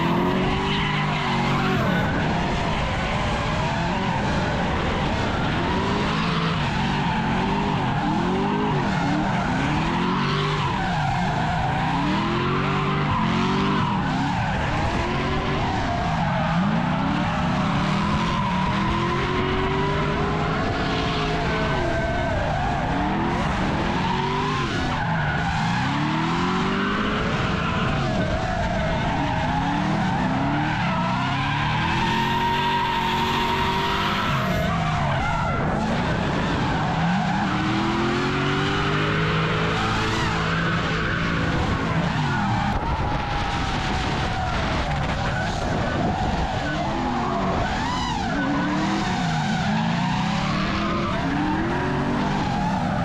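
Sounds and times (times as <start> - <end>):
tyres screeching: 0.0 - 2.2
car engine revving: 0.0 - 53.0.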